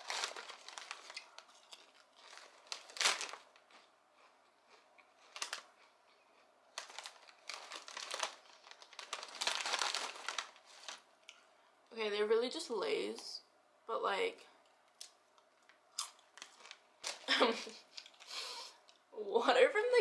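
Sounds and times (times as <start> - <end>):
chip bag crinkling and tearing: 0.0 - 11.4, 16.0 - 18.6.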